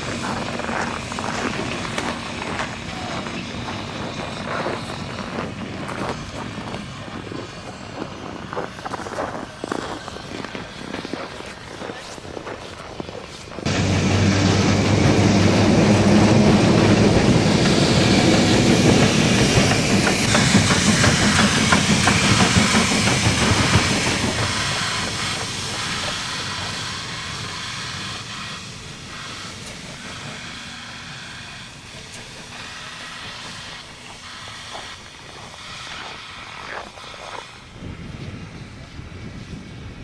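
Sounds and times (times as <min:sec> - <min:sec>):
loud hissing steam: 0:00.0 - 0:40.0
wheels clicking over rails: 0:13.6 - 0:37.6.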